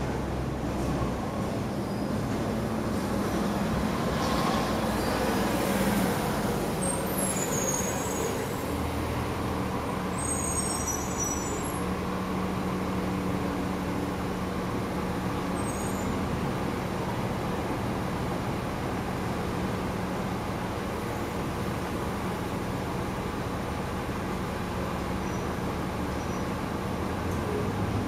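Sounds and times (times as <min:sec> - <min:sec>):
bus engine rumble: 0:00.0 - 0:28.0
street traffic: 0:00.0 - 0:28.0
short high squeaks: 0:07.2 - 0:08.4.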